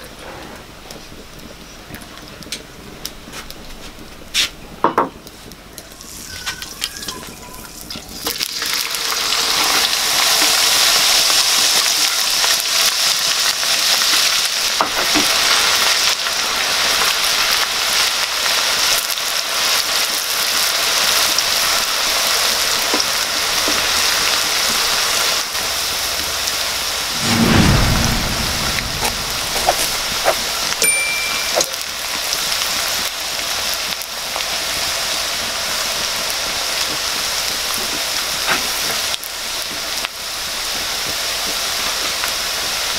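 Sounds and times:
deep-frying sizzle in oil: 0.0 - 42.9
low thump: 27.2 - 30.4.

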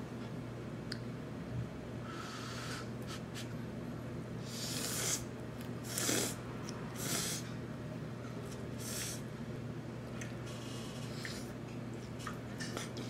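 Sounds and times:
person slurping noodles: 4.4 - 6.4.

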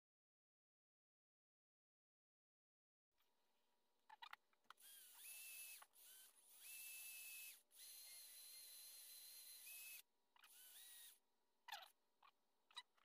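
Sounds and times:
cordless drill whining: 4.7 - 11.2.

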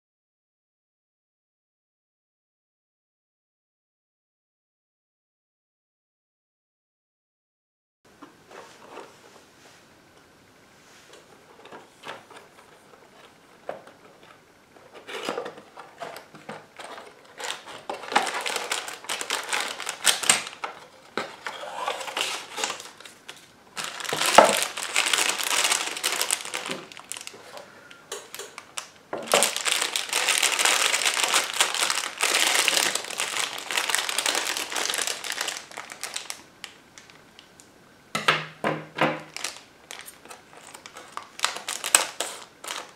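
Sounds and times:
paper and plastic crinkling: 11.1 - 37.5, 39.2 - 42.9.

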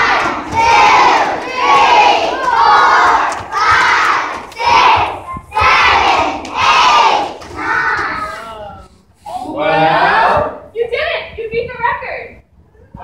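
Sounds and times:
crowd of children shouting: 0.0 - 8.4.

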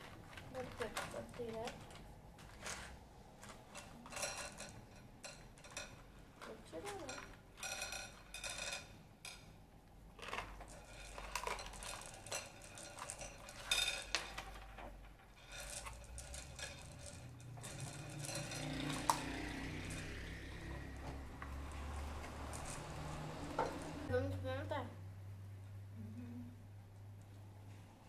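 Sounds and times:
candies rattling in cardboard boxes: 0.0 - 4.8, 5.6 - 8.8, 10.2 - 24.0.

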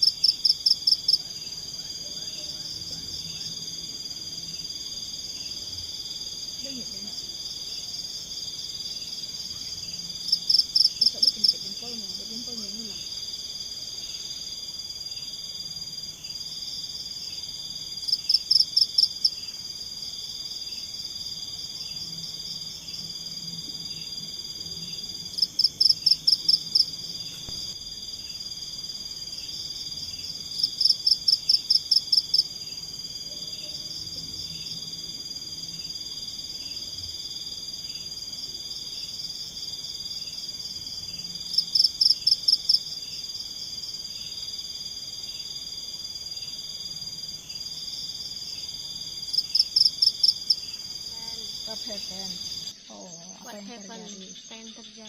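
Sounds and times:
insects high-pitched trill: 0.0 - 55.0
loud rapid pulsed insect calls: 0.0 - 55.0
soft pulsing insect call: 0.0 - 55.0.

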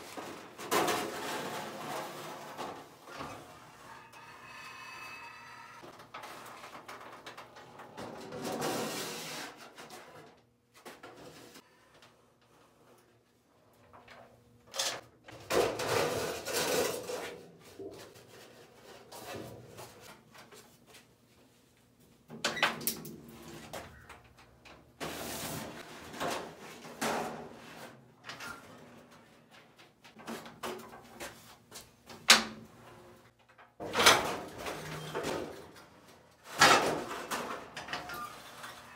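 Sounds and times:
metal sheet sliding and rattling: 0.0 - 11.6, 14.9 - 20.1, 25.0 - 29.1, 36.4 - 38.9.

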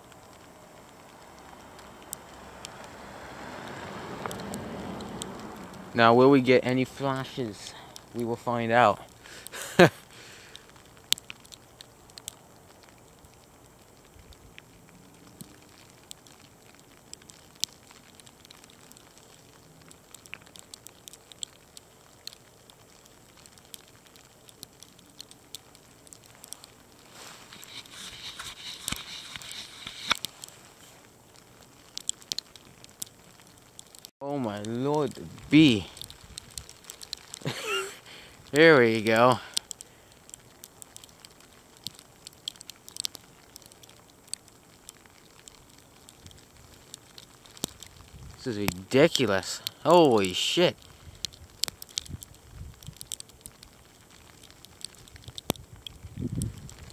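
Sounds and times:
faint steady hiss: 0.0 - 56.9
graupel pellets ticking: 0.0 - 56.9
faint hiss: 25.8 - 31.3, 34.2 - 42.3, 48.1 - 52.7.

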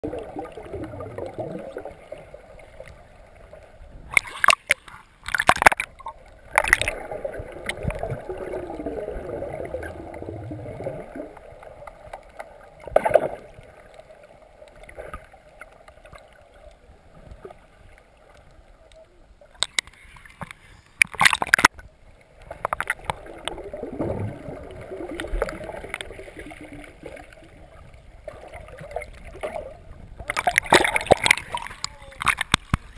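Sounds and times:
muffled underwater gurgling: 0.0 - 2.5, 6.1 - 11.6.

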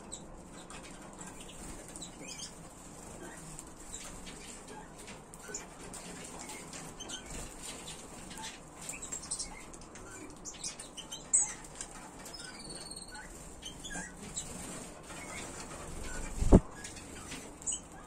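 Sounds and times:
finches chirping: 0.0 - 2.6, 3.2 - 18.0
wing flutters: 11.6 - 18.0.

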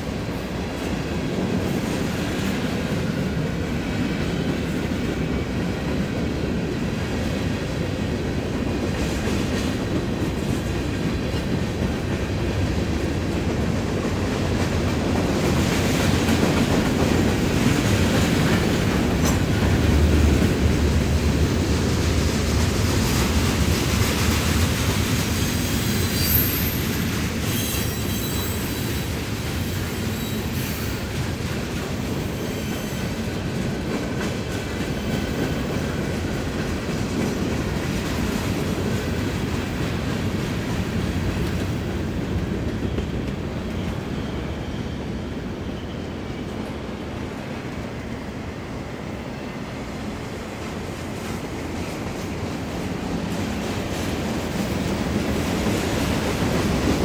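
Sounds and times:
freight train wheels clattering: 0.0 - 44.8
high wheel squeals: 25.6 - 29.1, 29.7 - 31.1.

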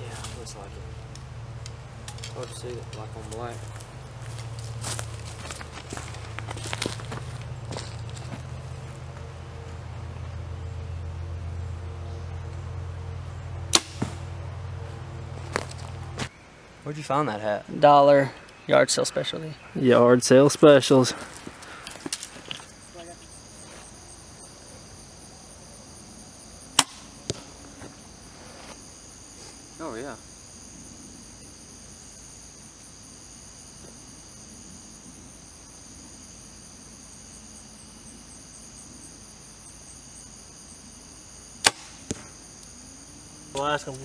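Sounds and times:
crickets and insects chirping: 0.0 - 44.0
bow release crack: 13.7 - 14.2, 26.8 - 27.5, 41.6 - 42.3
arrow hitting target: 13.7 - 14.3, 26.8 - 27.5, 41.6 - 42.3.

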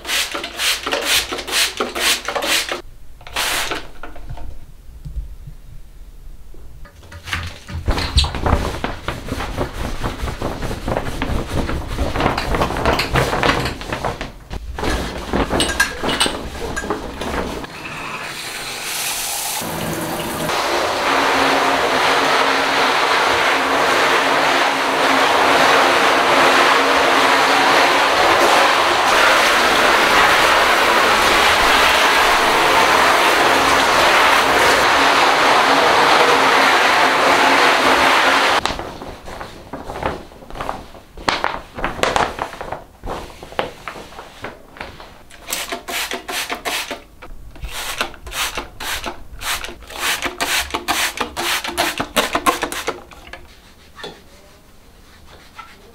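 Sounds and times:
scrubbing wet shower surfaces: 0.0 - 4.0, 6.9 - 17.7, 18.5 - 55.9
shower head spraying water: 15.6 - 38.6, 45.4 - 53.5.

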